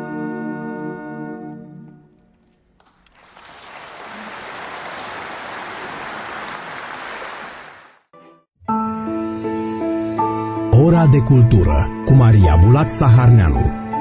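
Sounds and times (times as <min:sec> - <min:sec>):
audience applause: 0:02.8 - 0:08.1.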